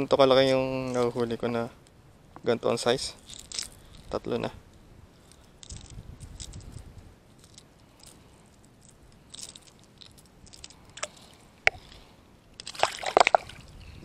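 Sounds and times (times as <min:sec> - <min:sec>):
handling clicks and scrapes: 0:03.1 - 0:04.5, 0:05.2 - 0:13.3.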